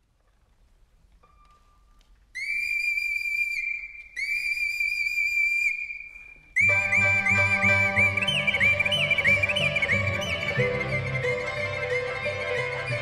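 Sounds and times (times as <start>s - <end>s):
bamboo flute trilling: 2.3s - 13.0s
ensemble playing: 6.6s - 13.0s.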